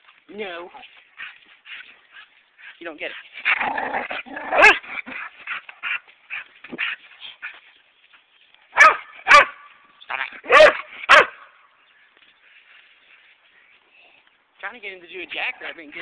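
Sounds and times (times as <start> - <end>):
dog barking: 4.6 - 4.8, 8.8 - 9.7, 10.4 - 11.5.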